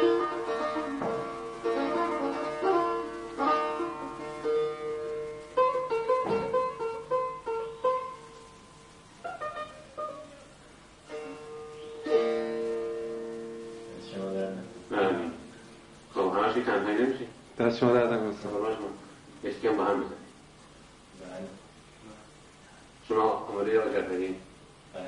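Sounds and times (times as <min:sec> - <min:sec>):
plucked setar notes: 0:00.0 - 0:08.5, 0:11.1 - 0:15.3
struck chord: 0:11.0 - 0:15.4.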